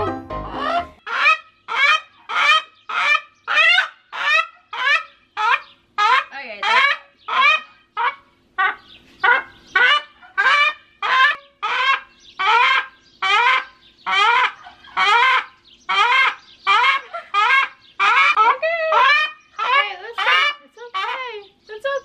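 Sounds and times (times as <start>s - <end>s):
rooster screaming: 9.3s - 20.6s.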